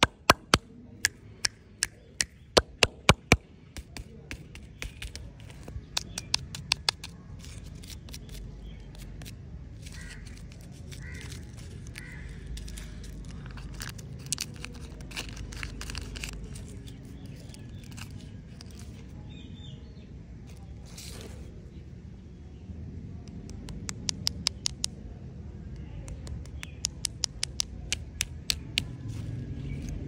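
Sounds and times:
fingertips tapping on plastic: 0:00.0 - 0:07.1, 0:26.1 - 0:29.0
plastic wrapper crinkling and tearing: 0:09.8 - 0:19.0.

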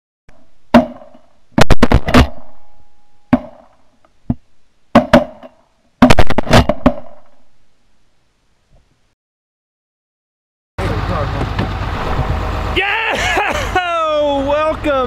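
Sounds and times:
shotgun blasts: 0:06.0 - 0:07.4.

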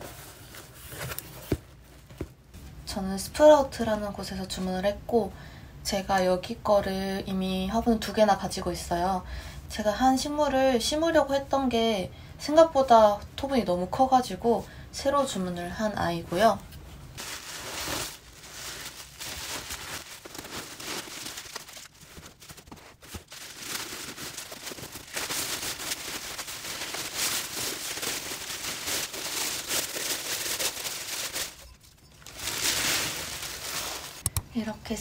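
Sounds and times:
paper rustling and crinkling: 0:00.0 - 0:02.3, 0:17.2 - 0:34.3.

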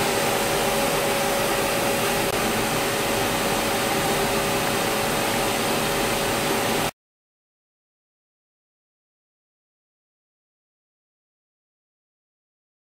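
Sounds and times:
milling machine hissing and humming: 0:00.0 - 0:06.9.

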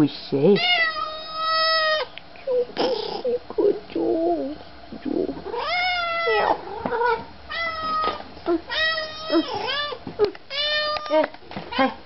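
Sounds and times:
cat meowing: 0:00.6 - 0:02.1, 0:05.5 - 0:11.1.

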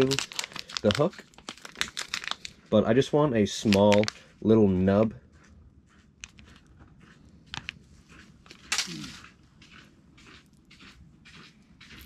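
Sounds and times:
hands handling plastic bait: 0:00.0 - 0:02.7, 0:03.4 - 0:04.4, 0:08.4 - 0:09.3.

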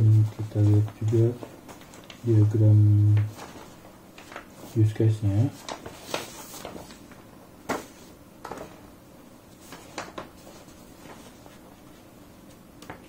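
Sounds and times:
soft handling clicks and rustles: 0:00.3 - 0:02.3, 0:03.1 - 0:08.8.

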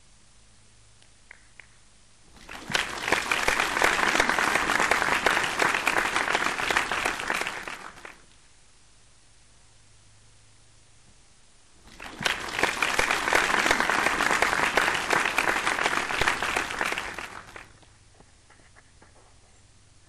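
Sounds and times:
crowd applause: 0:02.4 - 0:08.2, 0:11.9 - 0:17.8.

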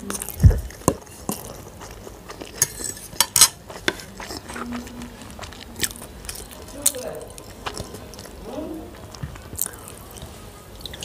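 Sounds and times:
fork and plates clinking: 0:02.6 - 0:04.1.

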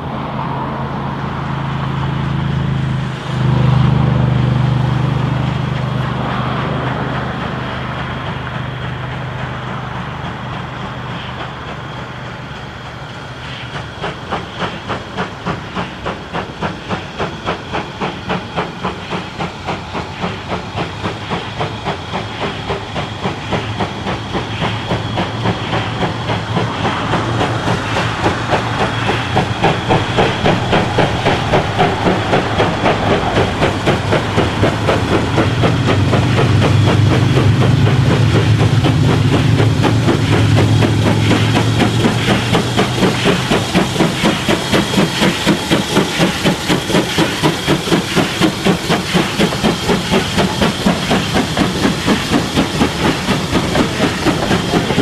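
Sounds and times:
steam locomotive chuffing: 0:00.0 - 0:55.0
steam hissing: 0:00.4 - 0:55.0.

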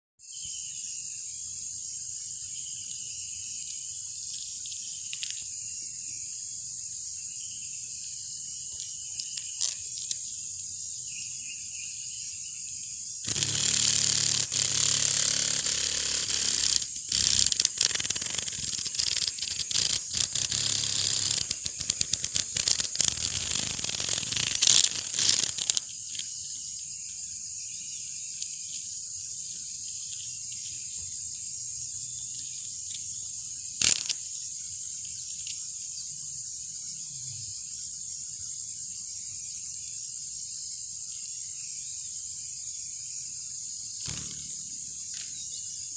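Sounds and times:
high-pitched insect drone: 0:00.2 - 0:45.9
cicada buzzing wing rattle: 0:02.1 - 0:06.4, 0:08.2 - 0:11.2, 0:13.1 - 0:35.8, 0:42.5 - 0:45.9
sharp click: 0:13.3 - 0:26.3, 0:33.8 - 0:34.3, 0:44.0 - 0:45.4.

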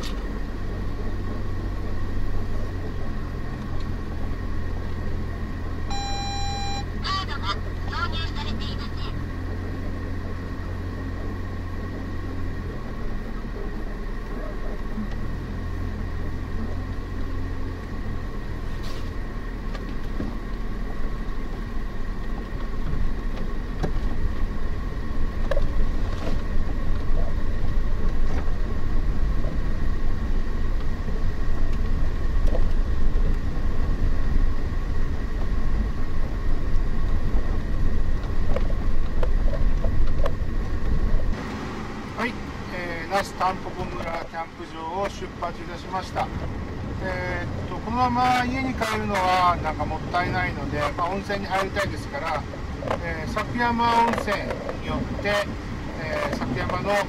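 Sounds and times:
small van engine running: 0:00.0 - 0:50.9
faint high whine: 0:05.8 - 0:07.0.

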